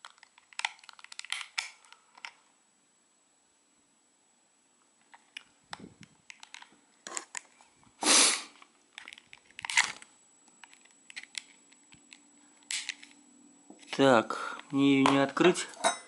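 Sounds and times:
remote being handled: 0.0 - 2.4, 5.0 - 7.6, 8.6 - 13.2.

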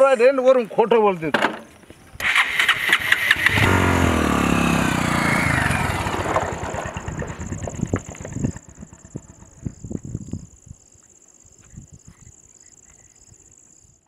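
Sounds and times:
motorcycle engine riding off: 2.2 - 10.5.

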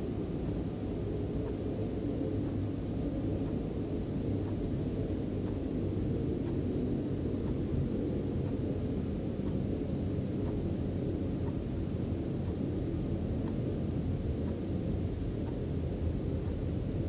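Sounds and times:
low rumble with hum: 0.0 - 17.0
faint ticks: 13.4 - 17.0.

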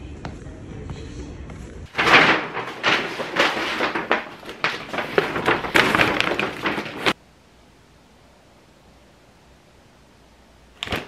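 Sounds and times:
paper bag rustling and crinkling: 1.9 - 7.2.

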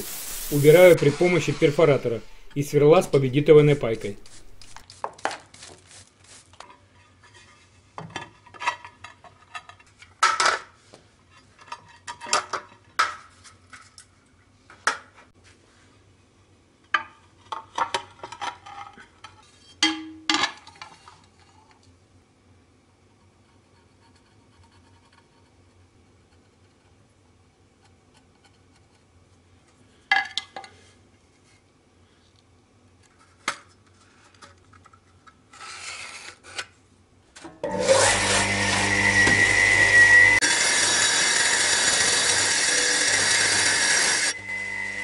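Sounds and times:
ceramic tiles scraped: 0.0 - 7.7, 35.5 - 36.6.

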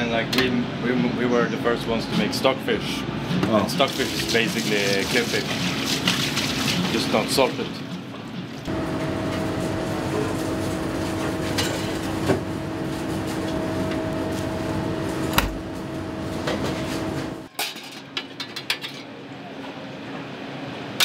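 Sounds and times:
machine hum with low drone: 7.8 - 18.0.

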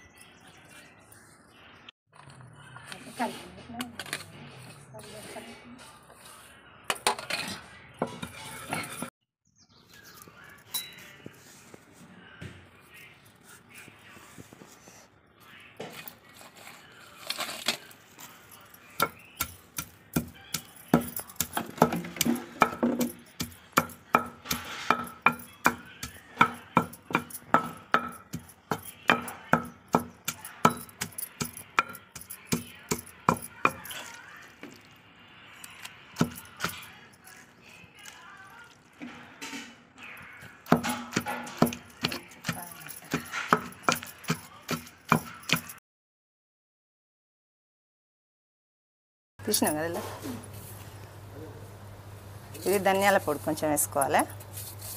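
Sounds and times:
pestle pounding in stone mortar: 19.0 - 34.1, 36.2 - 36.8, 40.6 - 45.8.

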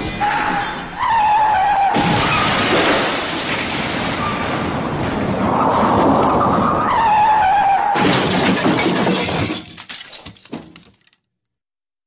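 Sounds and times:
car crash impact: 8.0 - 9.8
glass shattering: 8.0 - 11.2
debris clattering: 8.0 - 11.3.

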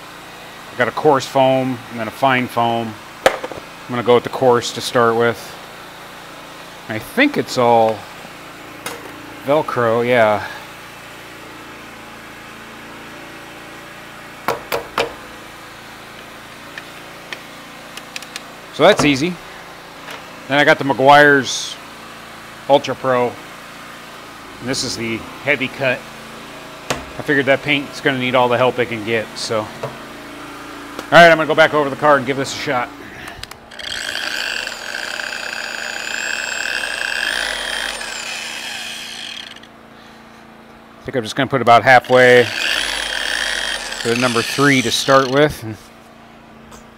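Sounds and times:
sharp knocks of car polisher: 3.2 - 3.7, 14.4 - 15.2, 26.8 - 27.2, 29.8 - 30.0
steady low hum: 13.5 - 35.9
electric polisher motor whining: 32.8 - 39.7, 42.1 - 45.5.

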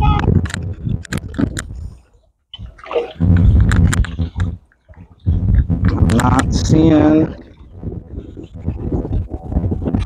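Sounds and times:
pond water splashing: 2.5 - 5.4.

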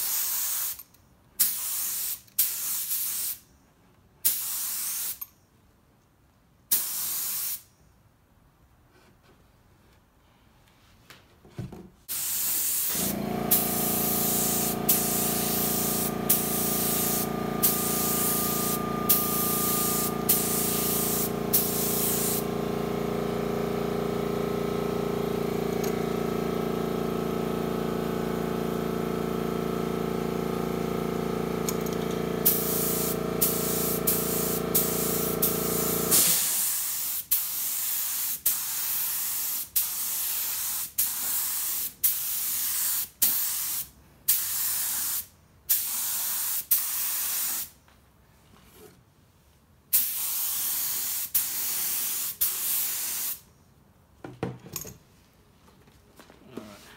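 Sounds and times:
spray gun hissing bursts: 6.7 - 7.6, 12.1 - 23.7, 32.4 - 47.7, 49.9 - 53.4
air compressor motor hum: 12.1 - 36.9.

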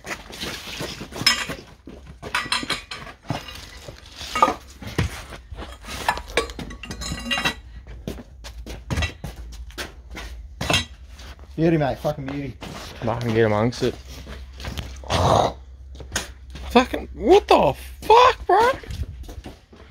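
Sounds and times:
metal tools clinking: 0.6 - 4.8, 5.6 - 7.7, 10.7 - 11.0.

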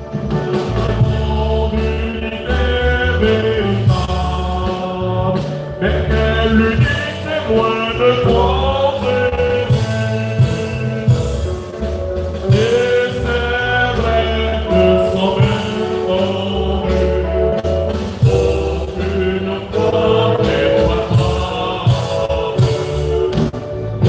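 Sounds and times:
low accompaniment: 0.0 - 24.0
choir singing a hymn: 12.5 - 24.0.

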